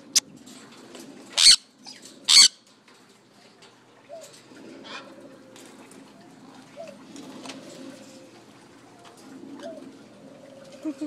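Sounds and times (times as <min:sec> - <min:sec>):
parrot squawking: 0:01.4 - 0:02.6.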